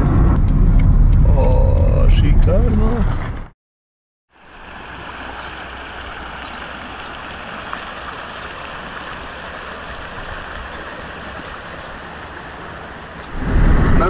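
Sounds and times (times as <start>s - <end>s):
fast river rushing: 4.4s - 14.0s.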